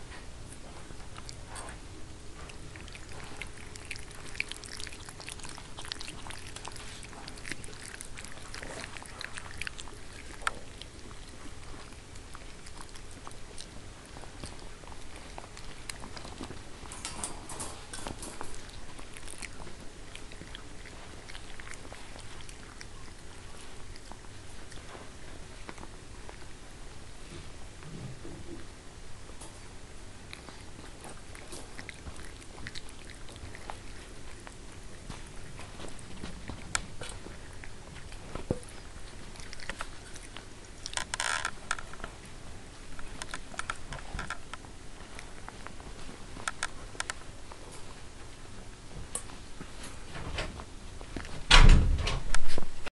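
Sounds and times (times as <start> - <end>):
puppies chewing: 0.0 - 51.6.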